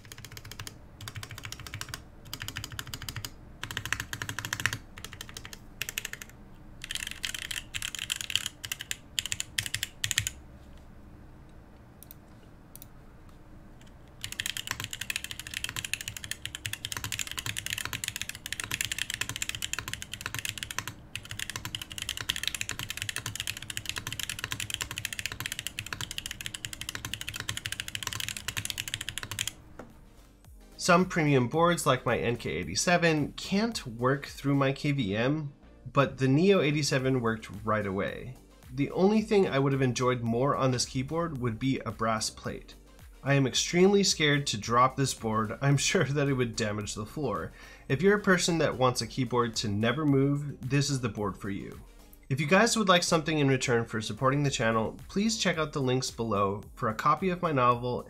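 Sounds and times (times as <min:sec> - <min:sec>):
mechanical keyboard typing: 0:00.0 - 0:10.4, 0:14.2 - 0:29.6.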